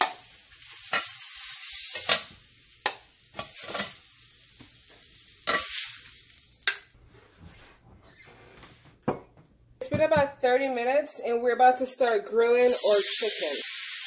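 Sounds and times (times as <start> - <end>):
food sizzling in a grill pan: 0.0 - 7.0, 12.6 - 14.0.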